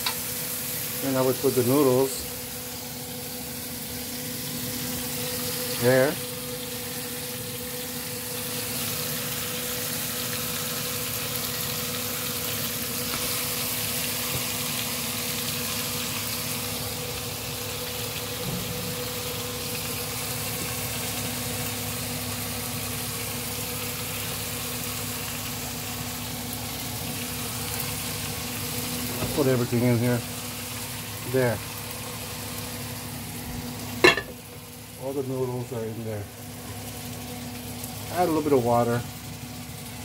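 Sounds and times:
food sizzling in a pan: 0:00.0 - 0:40.0.

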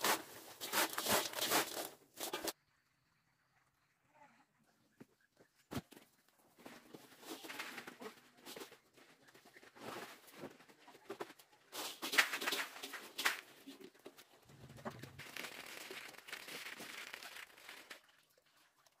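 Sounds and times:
plastic sack rustling: 0:15.0 - 0:18.1.

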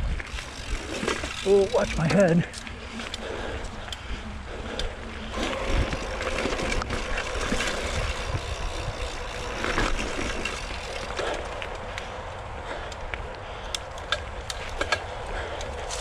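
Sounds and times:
bike rattling and knocking: 0:00.0 - 0:12.0, 0:13.5 - 0:16.0
highway traffic rumble: 0:00.0 - 0:16.0
tyres rolling over dirt: 0:05.0 - 0:11.9.

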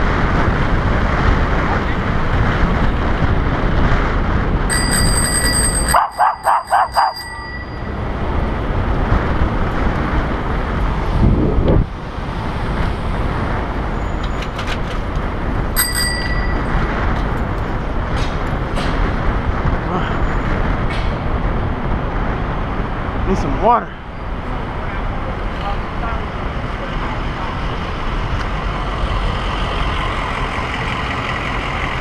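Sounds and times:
wind and road noise: 0:00.0 - 0:32.0
bicycle bell ringing: 0:04.7 - 0:08.2, 0:15.8 - 0:16.9.

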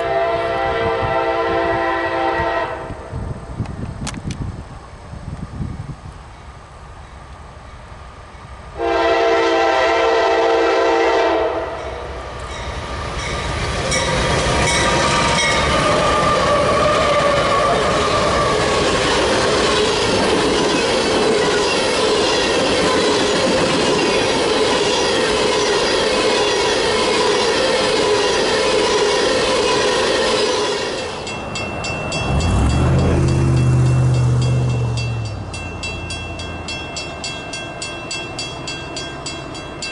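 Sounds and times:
locomotive air horn: 0:00.0 - 0:03.1, 0:08.8 - 0:11.9
freight cars wheels on rails: 0:12.2 - 0:39.9.

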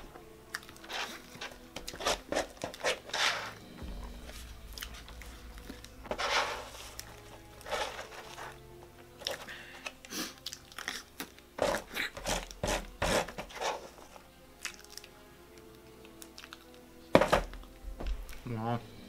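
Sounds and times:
chewing: 0:00.5 - 0:02.0, 0:09.0 - 0:12.6, 0:14.5 - 0:16.8
spoon scraping plastic tray: 0:00.9 - 0:03.6, 0:07.6 - 0:08.6, 0:11.6 - 0:14.2.

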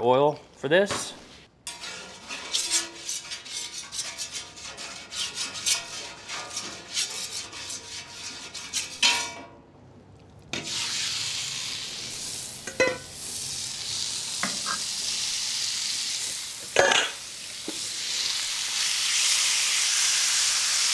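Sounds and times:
metal spatula scraping griddle: 0:01.0 - 0:09.4, 0:10.6 - 0:11.1
meat sizzling on griddle: 0:10.6 - 0:20.9.

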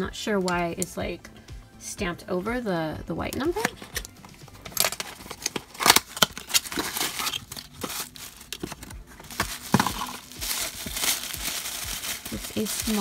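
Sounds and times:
cardboard tearing: 0:03.6 - 0:13.0
paper rustling: 0:03.7 - 0:13.0.

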